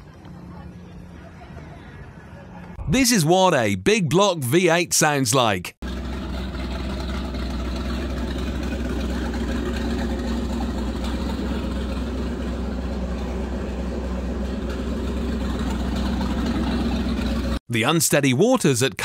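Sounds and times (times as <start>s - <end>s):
boat engine idling: 3.0s - 17.6s.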